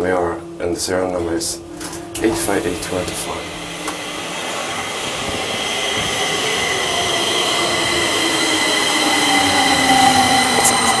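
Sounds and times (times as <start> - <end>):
metro train whining tones: 0.0 - 11.0
lower tone sliding down: 3.2 - 11.0.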